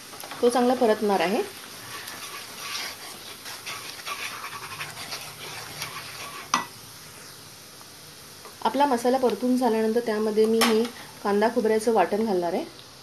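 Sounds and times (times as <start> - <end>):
masala sizzling in hot oil: 0.0 - 13.0
spatula stirring and scraping: 0.5 - 7.3.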